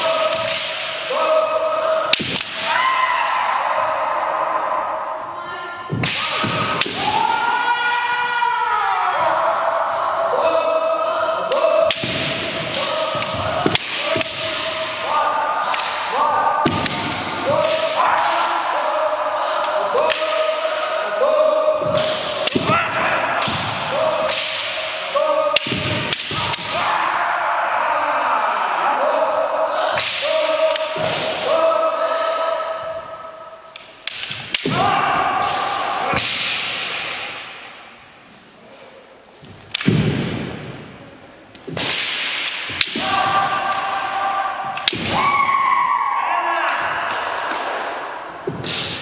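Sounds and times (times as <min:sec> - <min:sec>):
bamboo swords striking: 0:00.0 - 0:01.4, 0:02.1 - 0:02.8, 0:05.9 - 0:07.3, 0:11.5 - 0:18.9, 0:19.6 - 0:27.1, 0:30.0 - 0:31.6, 0:33.7 - 0:37.9, 0:39.7 - 0:40.8, 0:41.6 - 0:45.5, 0:46.7 - 0:49.0
long drawn-out shouts: 0:00.0 - 0:33.7, 0:34.5 - 0:37.4, 0:42.8 - 0:48.5.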